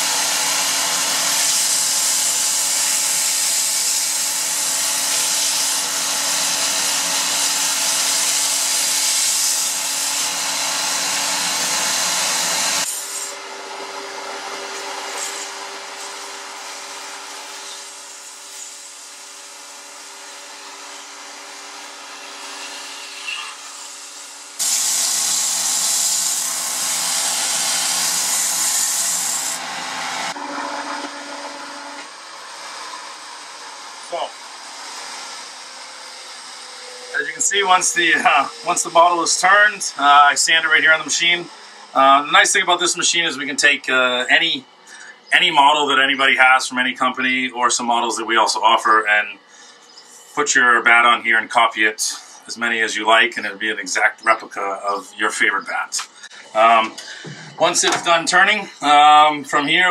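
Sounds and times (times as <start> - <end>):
sandpaper hissing on spinning wood: 0.0 - 13.4, 14.7 - 30.4, 33.4 - 42.4
lathe machinery hum: 0.0 - 42.4.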